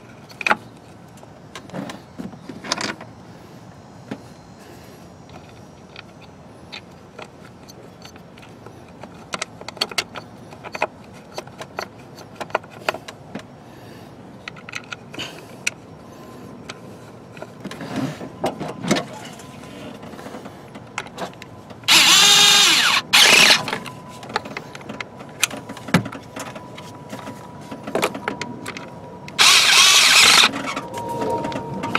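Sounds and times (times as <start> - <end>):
plastic and metal parts rattling: 14.4 - 15.8, 16.6 - 31.9.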